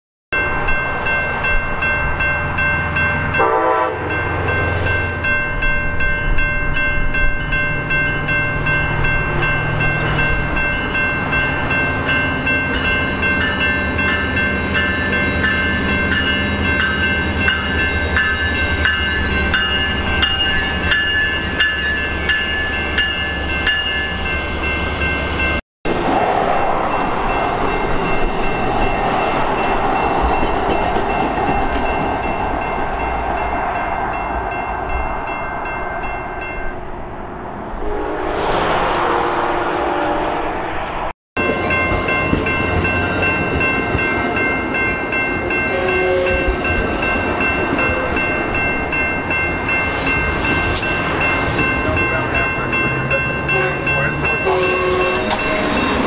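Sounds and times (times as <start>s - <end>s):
train coaches rumbling past: 0.4s - 56.0s
locomotive engine droning: 37.0s - 56.0s
steady high tones: 41.4s - 56.0s.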